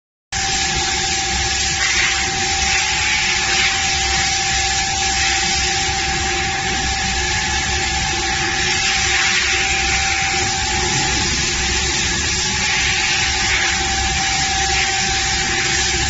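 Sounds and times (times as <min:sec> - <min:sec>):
router spindle whine: 0:04.4 - 0:16.0.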